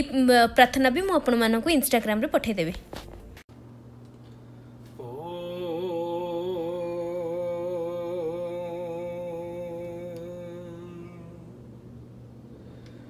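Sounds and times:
man chanting held note: 5.0s - 11.6s.

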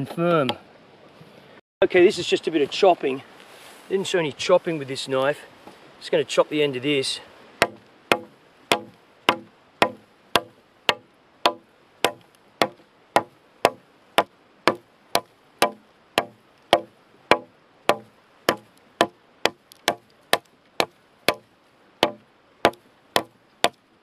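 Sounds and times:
knife chopping wood: 7.6s - 21.4s, 22.0s - 23.8s.

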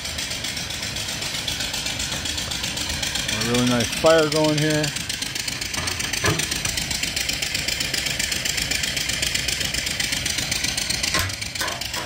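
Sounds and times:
steam engine running: 0.0s - 12.0s
short metallic knocks: 11.1s - 12.0s.

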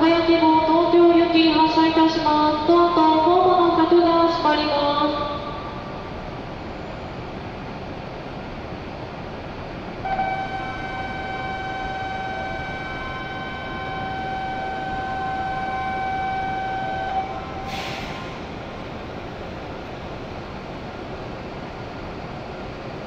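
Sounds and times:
station hum: 0.0s - 23.0s
electronic departure bell tone: 10.1s - 17.7s
short hiss: 17.6s - 18.5s.

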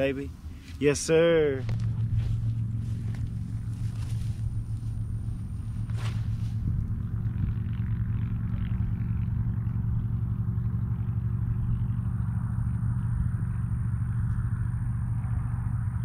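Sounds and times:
low rumble with faint hum: 0.0s - 16.0s.

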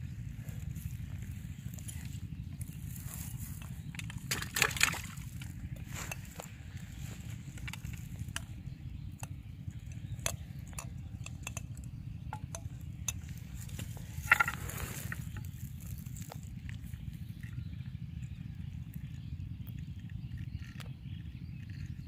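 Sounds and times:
steady low rumble: 0.0s - 22.0s
small clicks and rustles: 0.4s - 17.8s.

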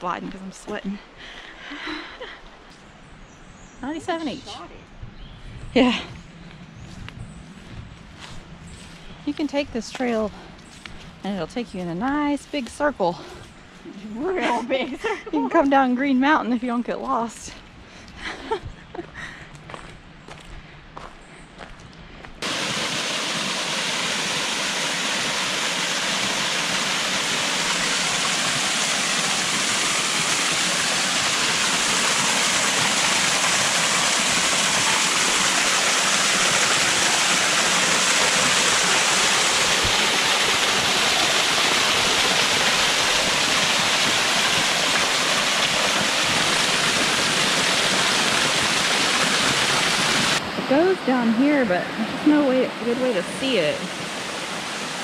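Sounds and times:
creek water rushing: 22.4s - 55.0s.

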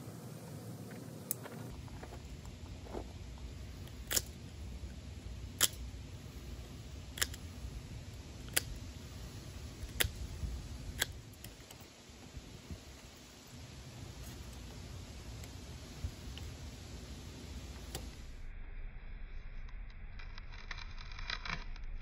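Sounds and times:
knife carving wood clicks: 3.8s - 7.8s, 8.4s - 11.8s.

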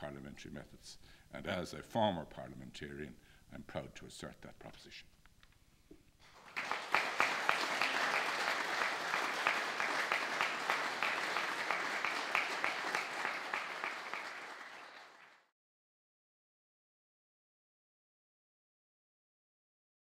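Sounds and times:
audience applauding: 6.2s - 15.5s.

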